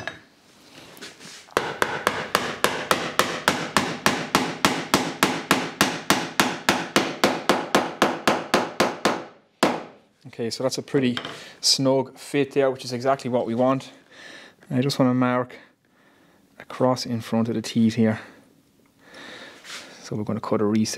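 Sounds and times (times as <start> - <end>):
mallet knocking on wood: 1.6 - 9.9.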